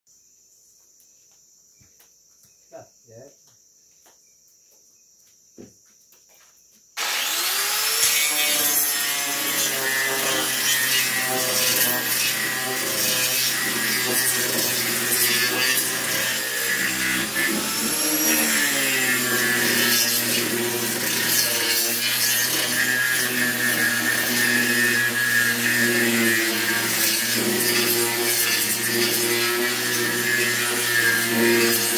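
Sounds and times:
faint crickets: 0:00.1 - 0:07.0
angle grinder grinding wood: 0:07.0 - 0:31.9.

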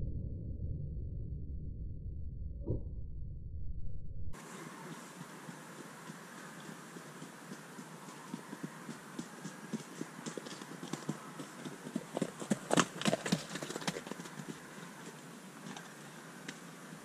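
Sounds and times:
horse hoofbeats: 0:04.8 - 0:16.1.

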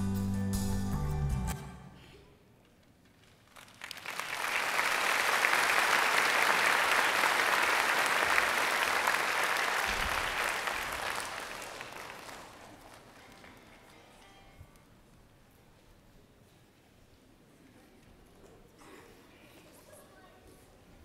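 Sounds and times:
audience applause: 0:03.3 - 0:14.0.

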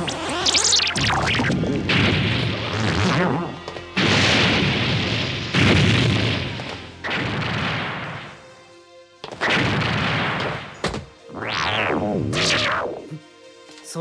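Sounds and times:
background music: 0:00.0 - 0:14.0
sharp crack: 0:00.4 - 0:08.6, 0:09.2 - 0:13.0
cartoon explosion booms: 0:00.9 - 0:03.3, 0:04.0 - 0:08.4, 0:09.4 - 0:12.8.

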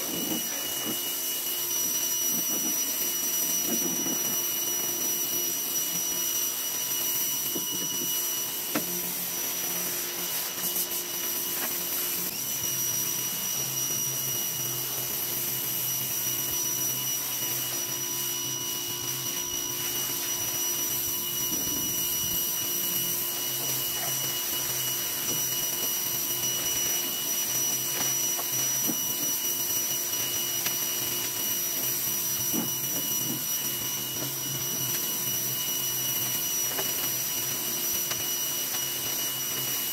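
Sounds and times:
pressure washer motor whining: 0:00.0 - 0:39.9
water jet hissing: 0:07.8 - 0:12.9, 0:14.6 - 0:29.5.

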